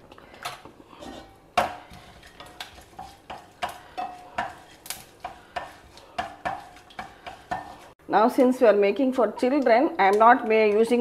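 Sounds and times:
wooden spatula scraping pan: 0:00.8 - 0:08.0.

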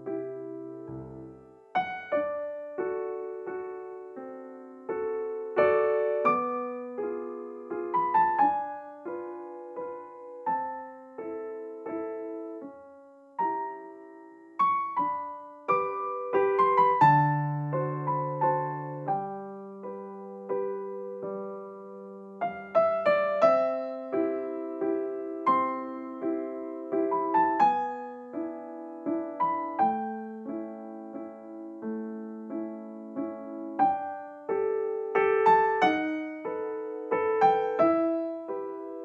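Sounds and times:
gentle piano melody: 0:00.0 - 0:39.0.

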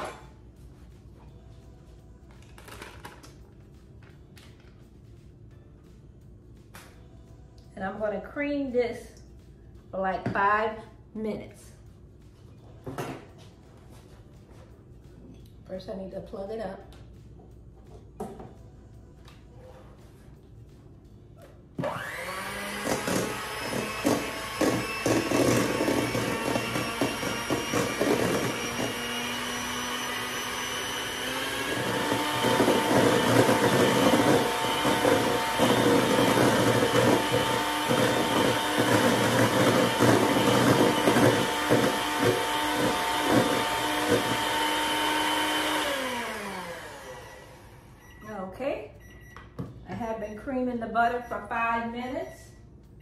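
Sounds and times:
electric hand mixer whining: 0:21.8 - 0:48.0.

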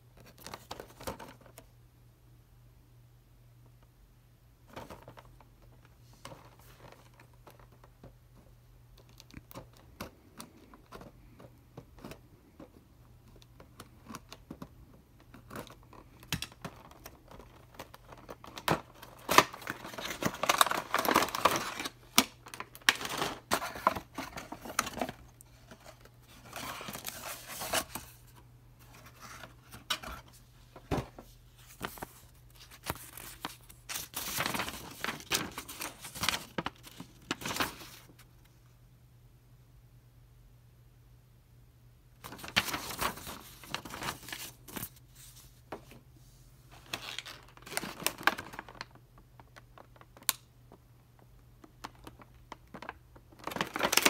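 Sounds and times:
packaging rustling and crinkling: 0:09.0 - 0:38.3, 0:42.2 - 0:46.0, 0:46.7 - 0:50.4, 0:51.8 - 0:54.0
paper unfolding: 0:31.6 - 0:38.2.

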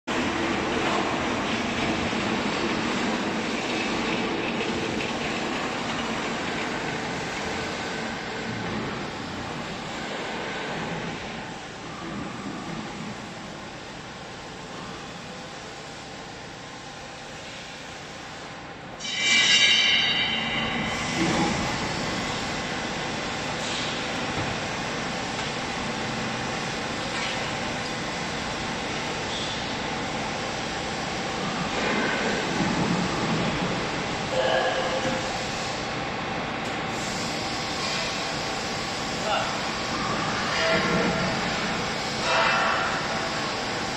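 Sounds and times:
factory machinery rumble: 0:00.1 - 0:43.9
hydraulic machine drone: 0:19.0 - 0:26.1, 0:36.9 - 0:43.9.

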